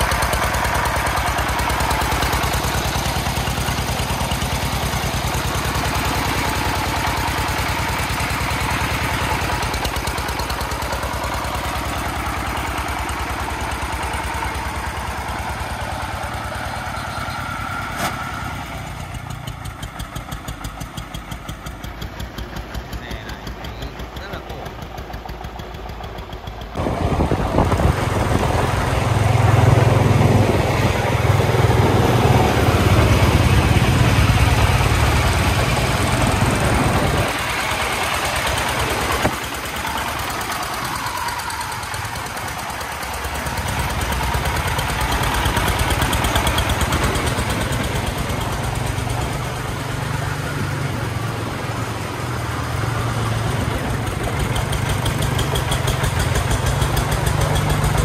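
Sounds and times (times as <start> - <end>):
diesel engine chugging: 0.0 - 58.0.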